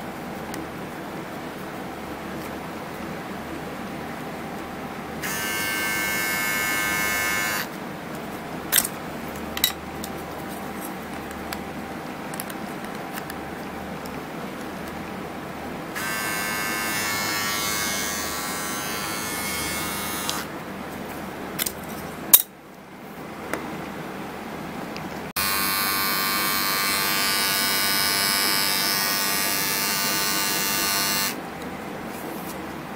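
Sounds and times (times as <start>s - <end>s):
trimmer motor buzzing: 5.2s - 7.7s, 16.0s - 20.5s, 25.4s - 31.4s.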